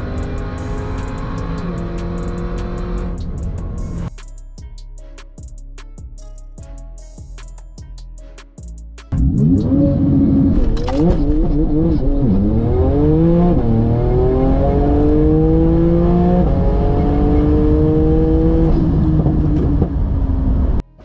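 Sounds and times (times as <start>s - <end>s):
car engine accelerating through gears: 0.0s - 4.1s, 9.2s - 20.8s.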